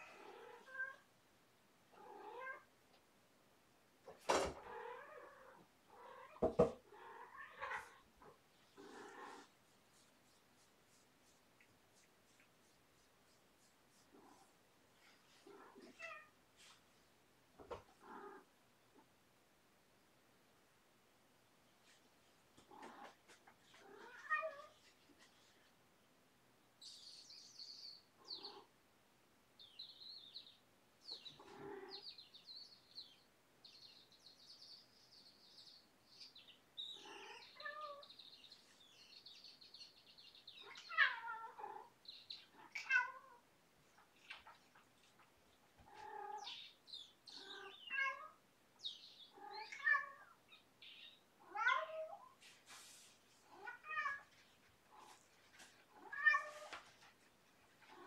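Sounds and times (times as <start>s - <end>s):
cat meowing: 37.0s - 38.1s, 40.6s - 41.9s, 42.6s - 43.4s, 47.4s - 48.4s, 51.4s - 52.2s, 53.5s - 54.3s, 56.0s - 56.7s.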